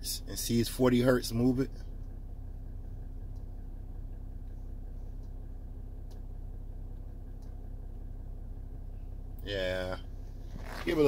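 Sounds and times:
car engine idling: 0:00.0 - 0:11.0
faint ticks: 0:03.2 - 0:03.5, 0:04.4 - 0:05.4.

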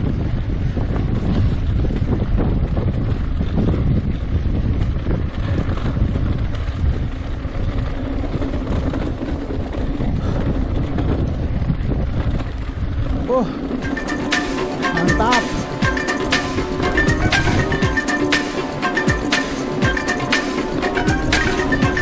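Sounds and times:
bike rumbling over dirt trail: 0:00.0 - 0:15.9
wind buffeting microphone: 0:00.0 - 0:22.0.

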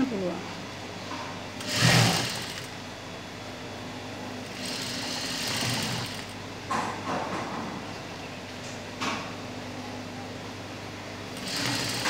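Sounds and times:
sewing machine stitching: 0:01.6 - 0:02.8, 0:04.5 - 0:06.4, 0:11.4 - 0:12.0.

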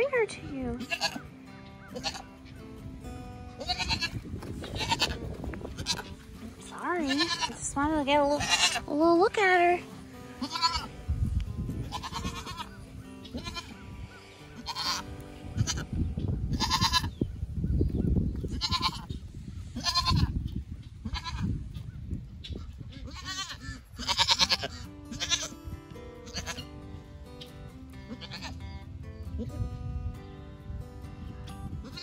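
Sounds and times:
goat kid bleating: 0:00.7 - 0:02.4, 0:03.5 - 0:06.2, 0:07.0 - 0:08.9, 0:10.3 - 0:10.9, 0:11.8 - 0:13.8, 0:14.5 - 0:15.9, 0:16.5 - 0:17.2, 0:18.5 - 0:19.2, 0:19.8 - 0:20.4, 0:21.0 - 0:21.6, 0:22.6 - 0:25.6, 0:26.2 - 0:26.7, 0:28.0 - 0:28.8, 0:31.8 - 0:32.0.

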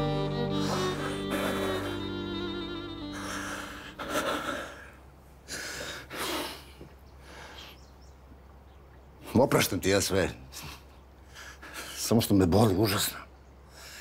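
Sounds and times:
bowed string music: 0:00.0 - 0:04.1
person breathing heavily and sighing: 0:00.3 - 0:07.8.

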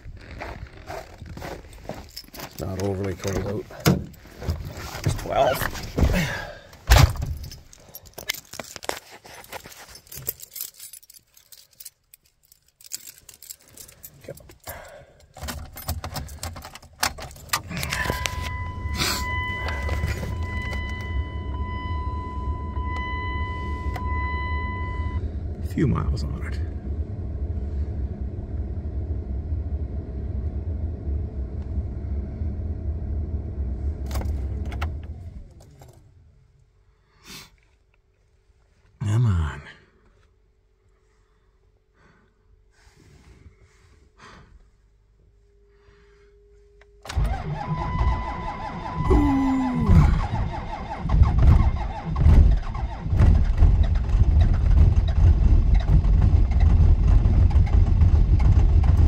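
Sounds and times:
keys clicking and scraping: 0:01.6 - 0:03.6, 0:07.2 - 0:18.5
diesel engine cranking: 0:12.8 - 0:36.1, 0:47.0 - 0:59.0
starter winding down whine: 0:47.0 - 0:59.0.

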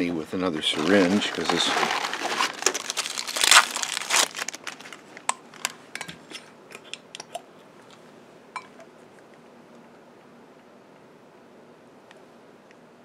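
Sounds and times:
wrapper tearing and crinkling: 0:00.7 - 0:05.7.

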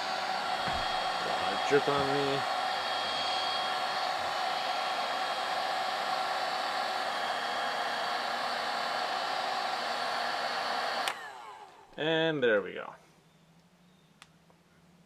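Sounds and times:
heat gun blowing with motor whine: 0:00.0 - 0:12.0
fan winding down: 0:00.0 - 0:12.3
heat gun switch click: 0:11.0 - 0:11.2.

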